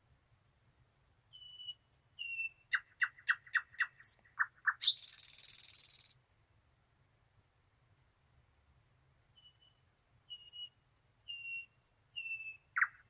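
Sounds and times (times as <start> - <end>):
nightingale singing: 0.7 - 6.2, 9.3 - 13.0.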